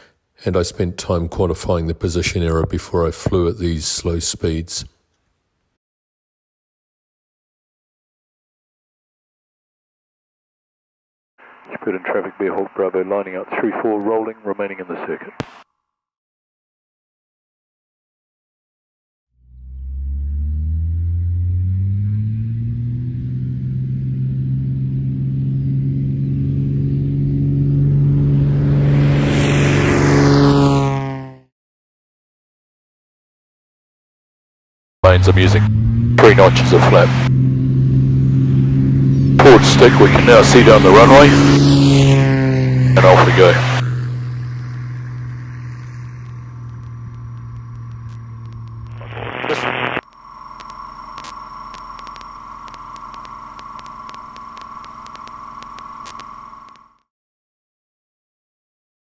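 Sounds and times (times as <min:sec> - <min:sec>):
propeller aircraft engine droning: 0:19.5 - 0:31.4, 0:35.1 - 0:56.8.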